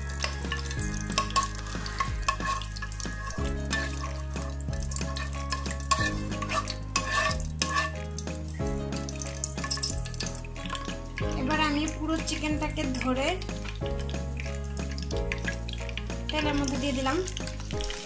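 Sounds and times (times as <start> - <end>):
metal spoon scraping a pan: 0.0 - 11.6
light sizzling: 0.0 - 18.0.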